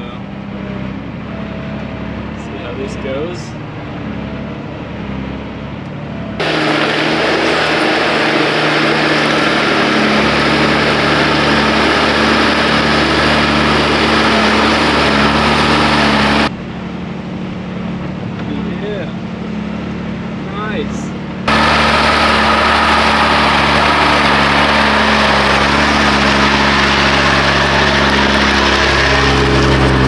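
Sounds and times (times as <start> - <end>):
diesel truck engine running: 0.0 - 30.0
loud rushing noise: 6.4 - 16.5, 21.4 - 30.0.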